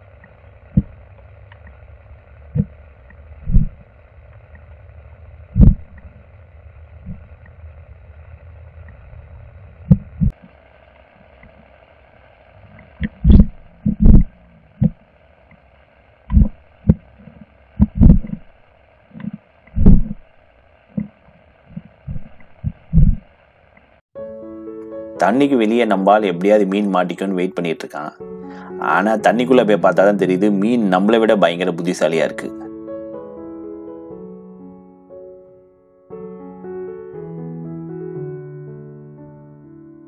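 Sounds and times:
underwater rumble and hiss: 0.0s - 24.0s
dull underwater thuds: 3.4s - 3.8s, 5.6s - 6.1s, 9.9s - 10.3s, 13.0s - 15.0s, 16.3s - 17.1s, 17.8s - 18.6s, 19.2s - 20.3s, 20.9s - 23.3s.

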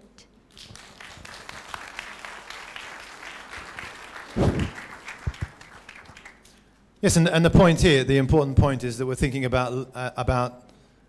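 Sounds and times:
audience applauding: 0.5s - 6.6s
loud low thump: 4.4s - 4.8s.

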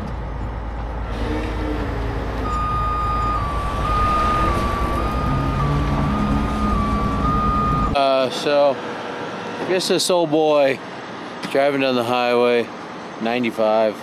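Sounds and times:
heavy truck engine rumble: 0.0s - 14.0s
high whine: 0.8s - 8.3s.

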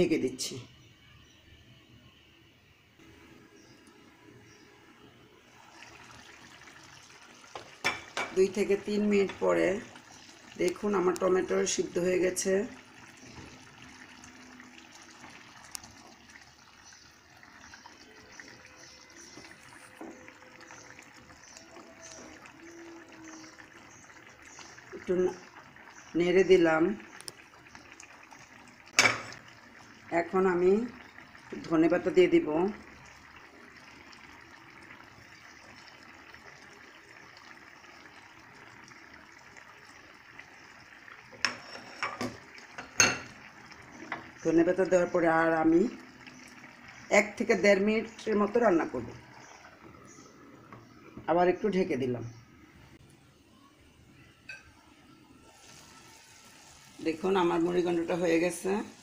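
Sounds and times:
curry bubbling and popping: 5.4s - 53.2s.

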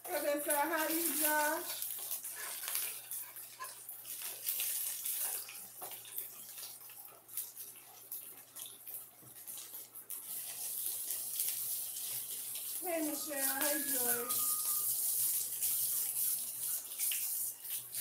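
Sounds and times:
patties sizzling in oil: 0.0s - 18.0s.

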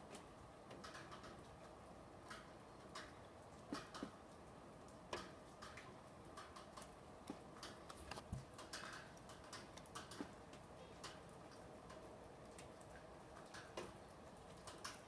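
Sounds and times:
faint light clicks and ticks: 0.0s - 15.0s.

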